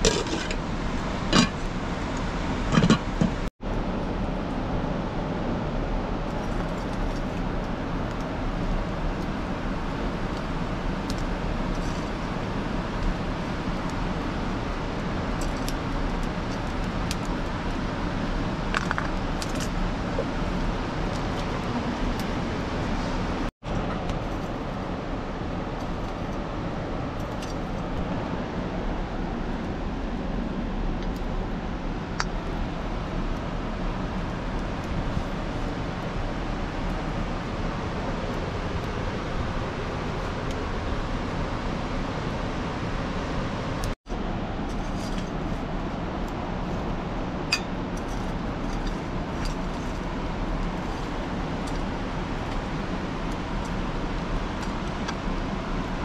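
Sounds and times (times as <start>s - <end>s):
fire crackling and popping: 6.2s - 22.4s.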